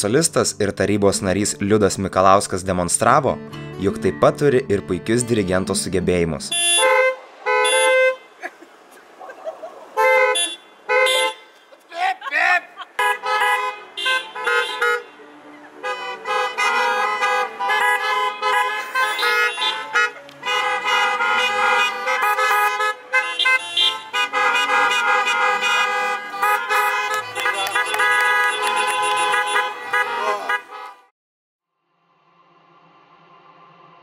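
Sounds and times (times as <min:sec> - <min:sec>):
car horns honking: 0:06.4 - 0:08.4, 0:09.9 - 0:31.1.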